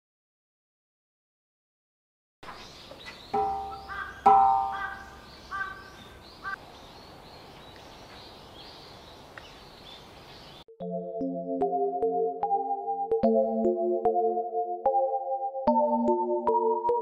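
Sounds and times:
faint bird chirps: 0:02.5 - 0:10.6
crow cawing: 0:03.4 - 0:06.6
soft keyboard background music: 0:10.7 - 0:17.0.

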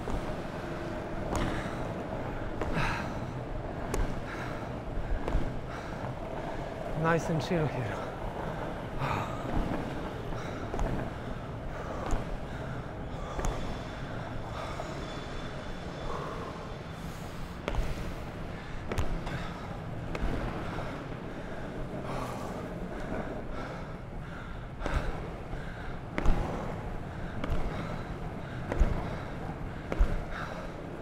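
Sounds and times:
heavy breathing: 0:00.0 - 0:07.0, 0:07.9 - 0:31.0
longboard wheels rolling on asphalt: 0:00.0 - 0:31.0.

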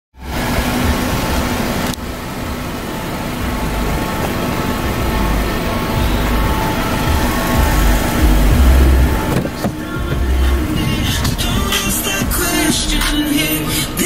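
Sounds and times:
car engine idling: 0:00.2 - 0:14.0
wind rumbling on microphone: 0:06.0 - 0:12.9.

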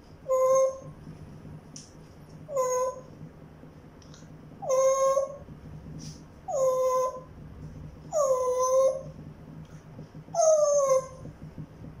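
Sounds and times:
parrot whining calls: 0:00.2 - 0:01.0, 0:02.5 - 0:03.1, 0:04.6 - 0:05.4, 0:06.5 - 0:07.3, 0:08.1 - 0:09.1, 0:10.3 - 0:11.3.

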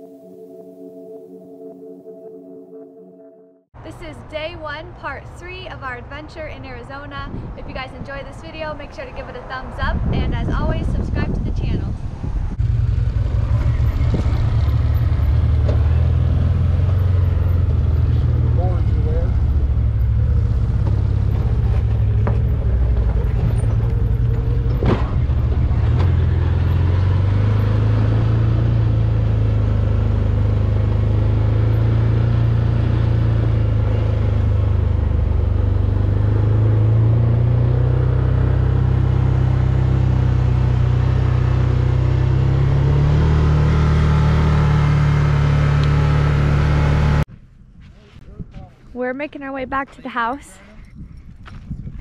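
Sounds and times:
vehicle engine droning: 0:10.1 - 0:47.3.

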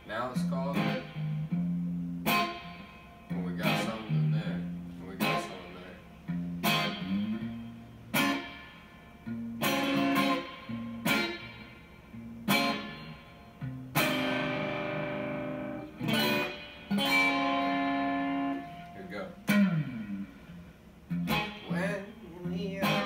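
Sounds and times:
electric guitar played slowly: 0:00.0 - 0:23.0.

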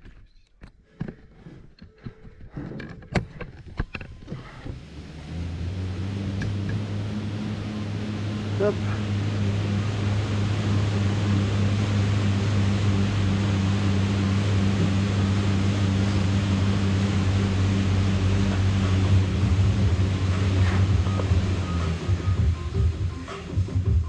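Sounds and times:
low hum: 0:00.9 - 0:24.0
even rushing noise: 0:04.8 - 0:23.6.

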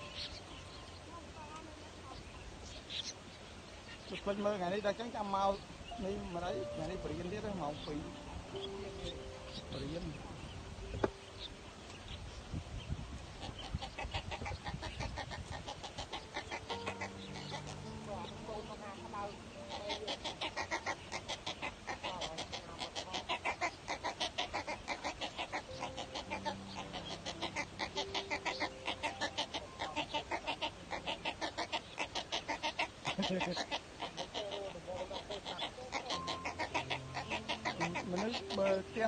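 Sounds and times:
nestlings clucking chatter: 0:03.9 - 0:12.2, 0:13.2 - 0:39.0.

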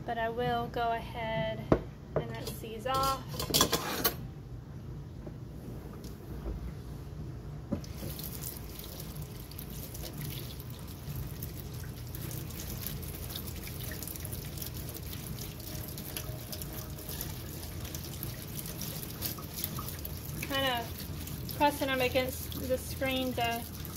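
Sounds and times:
kitchen faucet running: 0:07.8 - 0:23.9
water splashing into sink: 0:07.8 - 0:23.9.

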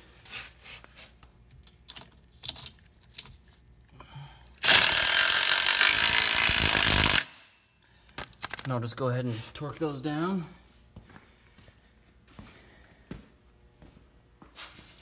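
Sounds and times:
parts clicking and knocking: 0:01.2 - 0:03.7
impact driver running: 0:04.6 - 0:07.4.

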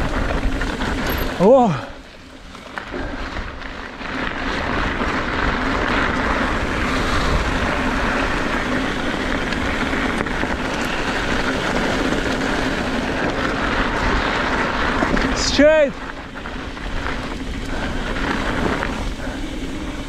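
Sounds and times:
wind on microphone: 0:00.0 - 0:01.9
bike tyres on dirt: 0:00.0 - 0:20.0.

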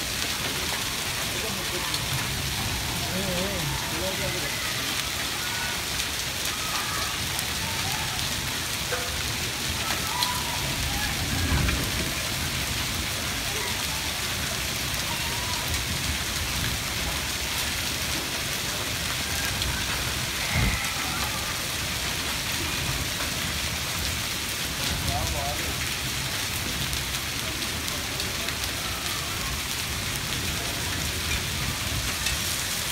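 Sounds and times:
hail and heavy rain falling: 0:00.0 - 0:32.9.

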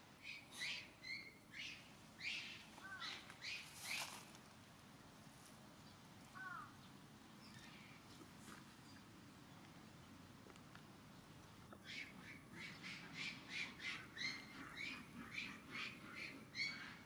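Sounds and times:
birds calling harshly: 0:00.2 - 0:04.3, 0:06.3 - 0:08.0, 0:11.8 - 0:17.0.

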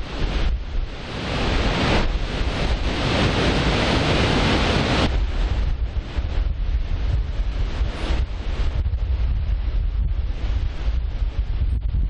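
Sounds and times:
surf: 0:00.0 - 0:12.0
wind buffeting microphone: 0:00.0 - 0:12.0
waterfall rushing: 0:00.9 - 0:05.1.

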